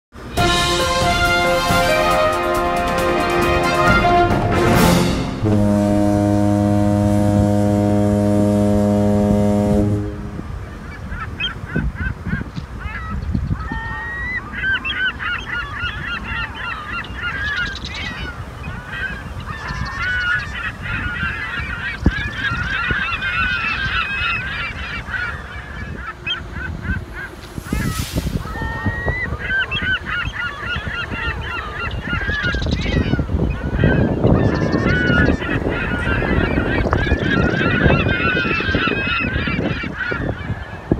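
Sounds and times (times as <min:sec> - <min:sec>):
deep horn tone: 0:00.3 - 0:10.6
wind rumble: 0:03.0 - 0:40.9
flock of birds calling: 0:10.6 - 0:40.9.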